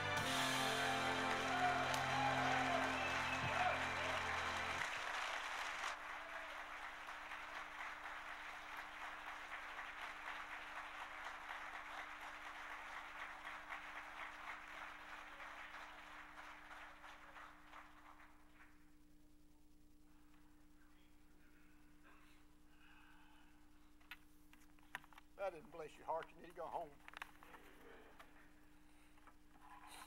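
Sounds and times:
congregation applauding: 0.0 - 18.8
steady low hum: 18.2 - 29.9.

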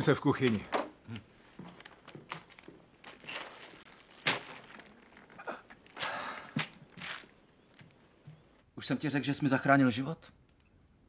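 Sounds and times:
plastic bag crinkling: 1.3 - 8.2.

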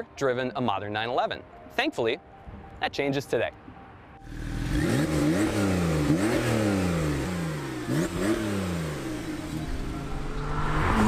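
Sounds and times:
car engine revving: 4.2 - 11.0.

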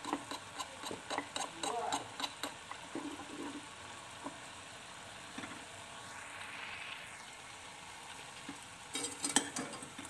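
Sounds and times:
spoon tapping pot: 0.0 - 2.8
pork bubbling and sizzling: 0.0 - 10.0.

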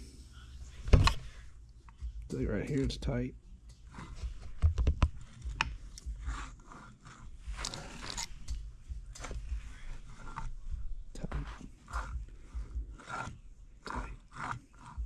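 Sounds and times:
metal parts scraping and rustling: 7.6 - 8.6.

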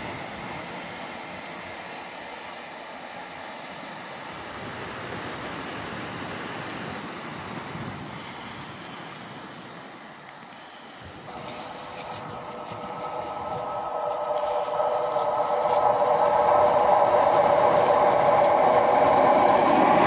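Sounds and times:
wind and sea rushing: 0.0 - 20.0
train rumbling: 11.0 - 20.0.

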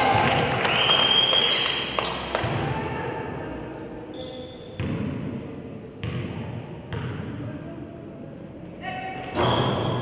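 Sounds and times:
gym crowd noise: 0.0 - 10.0
shoe squeaks: 3.5 - 4.8, 9.4 - 10.0
basketball bouncing on court: 4.8 - 5.3, 6.0 - 7.3.

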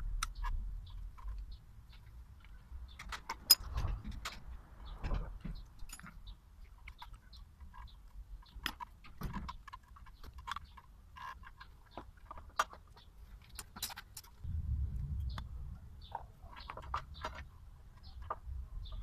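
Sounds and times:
brake parts clicking and clinking: 0.2 - 14.4
low rumble: 14.4 - 16.2.

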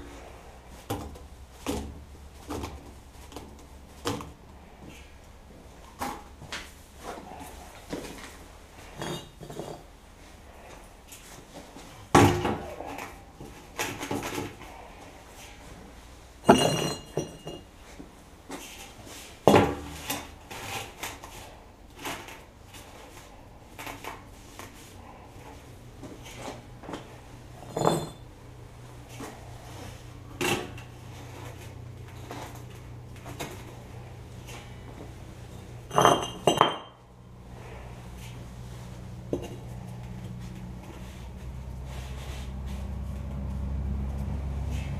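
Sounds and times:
bricks clinking inside metal barrel: 9.0 - 9.9, 16.5 - 17.7, 27.6 - 28.2, 35.9 - 36.9.

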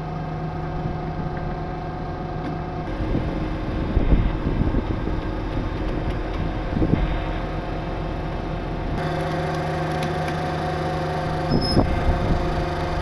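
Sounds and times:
truck engine running: 0.0 - 13.0.

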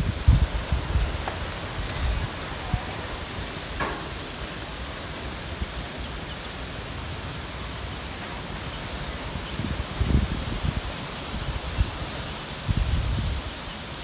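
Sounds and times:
wind bumps on microphone: 0.0 - 3.1, 9.4 - 13.6
light wind in plants: 0.0 - 14.0.

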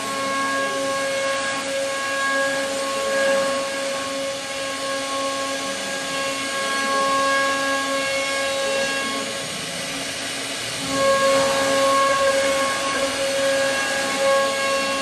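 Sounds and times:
cnc router spindle whining: 0.0 - 15.0.

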